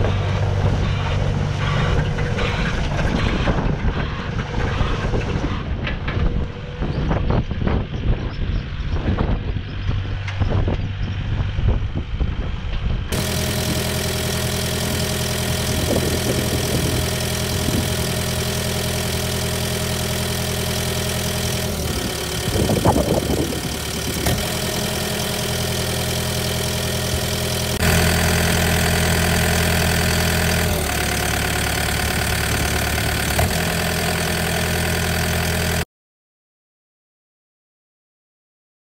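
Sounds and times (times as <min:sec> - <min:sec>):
excavator working: 0:00.0 - 0:06.9, 0:13.1 - 0:35.8
wind on microphone: 0:02.8 - 0:13.1, 0:22.0 - 0:24.2
diesel engine idling: 0:13.1 - 0:35.8.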